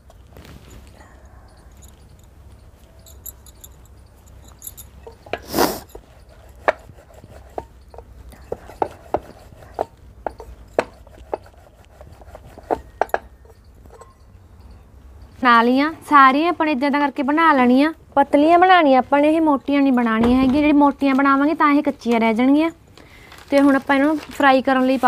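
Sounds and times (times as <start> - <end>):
rolling pin rolling dough: 5.1 - 14.3.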